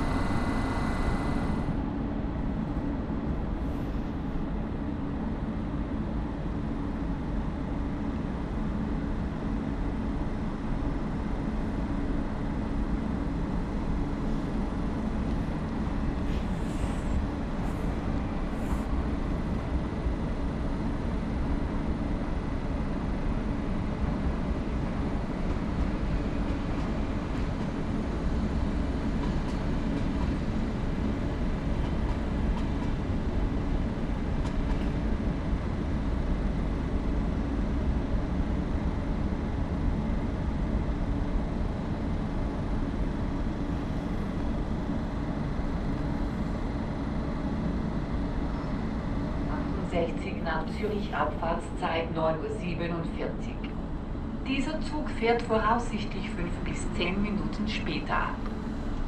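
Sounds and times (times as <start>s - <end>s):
electric trains humming: 0.0s - 59.0s.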